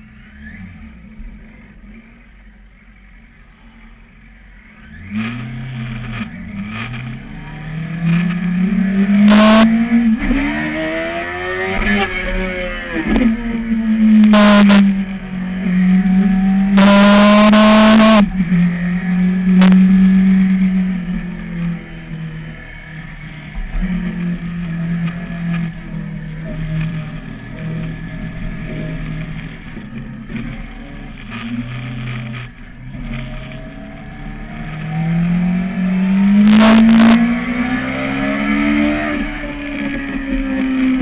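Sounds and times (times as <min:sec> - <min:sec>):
motorcycle engine revving: 0:04.8 - 0:41.0.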